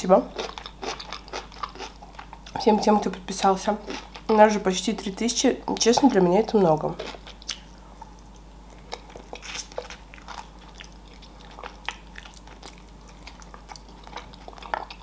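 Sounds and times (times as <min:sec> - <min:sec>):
chewing meat off bone: 0:00.3 - 0:02.6, 0:07.0 - 0:15.0
mouth and teeth clicks: 0:07.3 - 0:15.0.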